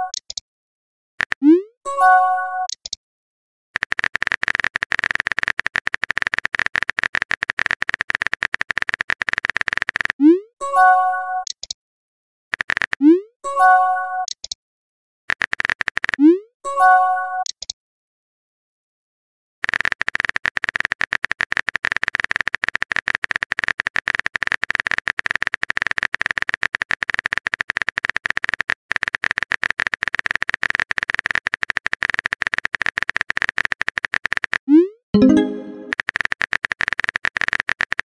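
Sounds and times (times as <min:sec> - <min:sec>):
pitched tone: 0:35.2 - 0:36.0.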